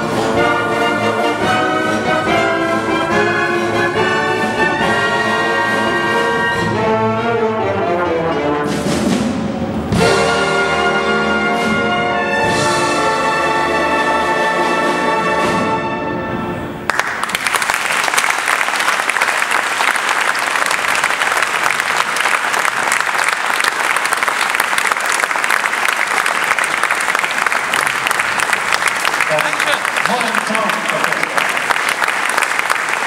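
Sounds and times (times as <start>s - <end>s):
audience applause: 16.9s - 33.0s.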